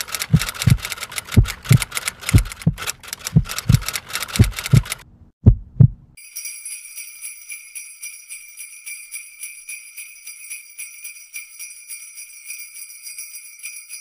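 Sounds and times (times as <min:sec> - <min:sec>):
sleigh bells shaken: 0:06.2 - 0:14.0.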